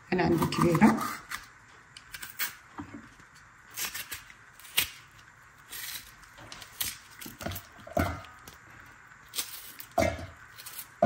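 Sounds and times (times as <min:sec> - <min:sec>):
knife cutting pepper: 0:03.7 - 0:08.6.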